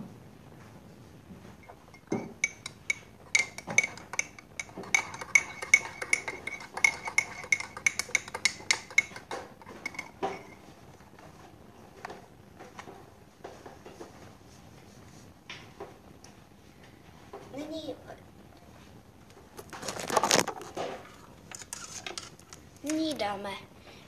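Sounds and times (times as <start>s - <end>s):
teaspoon clinking in a mug: 2.0s - 10.5s.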